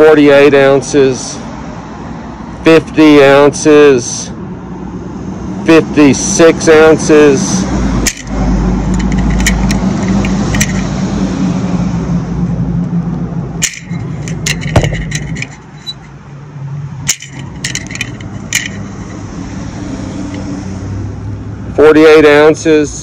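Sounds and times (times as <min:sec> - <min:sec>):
truck driving past: 0:04.4 - 0:21.8
sharp clicks of handled tools: 0:08.0 - 0:11.0, 0:13.6 - 0:16.2, 0:17.1 - 0:19.3, 0:20.2 - 0:20.5.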